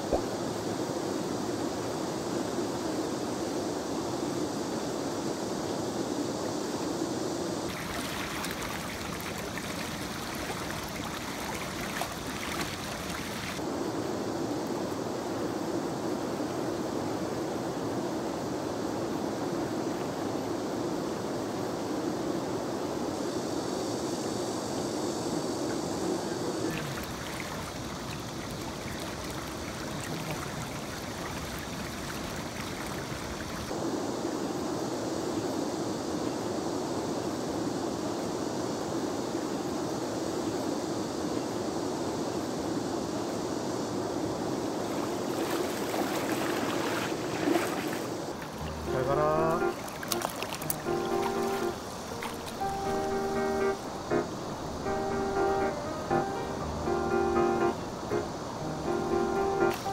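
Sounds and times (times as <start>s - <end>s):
water trickling and splashing: 7.7s - 13.6s, 26.6s - 33.8s, 44.8s - 53.1s
river water rushing: 7.7s - 13.7s, 26.5s - 33.8s, 44.8s - 59.9s
water trickling ticks: 49.4s - 52.6s.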